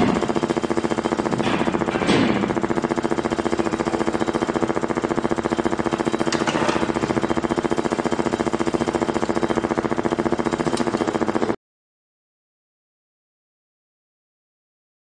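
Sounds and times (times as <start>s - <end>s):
pulsing motor-like drone: 0.0s - 11.6s.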